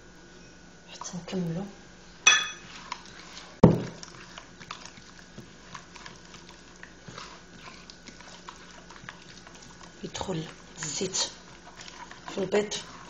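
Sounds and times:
fingers mixing wet batter in bowl: 2.6s - 13.0s.

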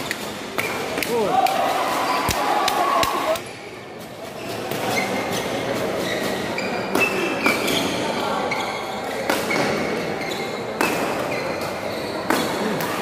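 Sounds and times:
murmur of spectators: 0.0s - 13.0s
court shoes squeaking: 3.4s - 13.0s.

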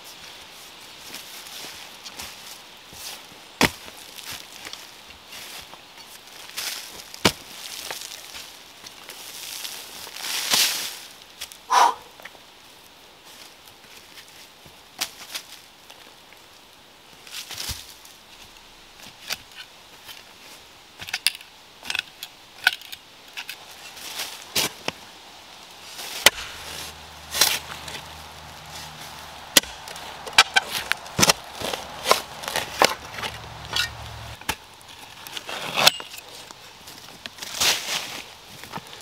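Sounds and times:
shovel chopping into soil: 26.1s - 34.6s
loppers cutting roots: 26.2s - 34.6s.

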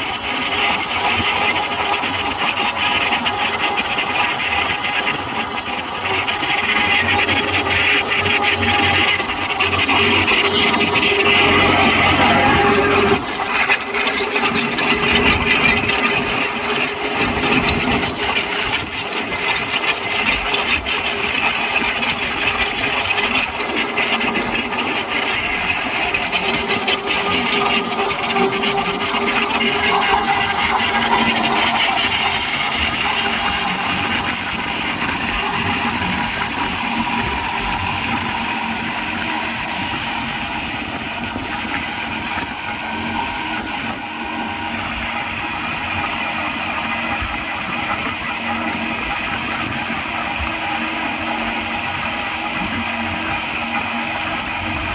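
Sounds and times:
tractor engine running under load: 0.0s - 54.9s.

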